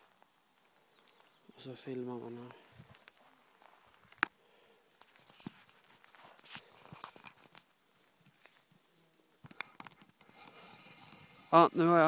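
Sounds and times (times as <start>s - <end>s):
handling rustles and scrapes: 4.9s - 7.7s, 10.0s - 12.0s.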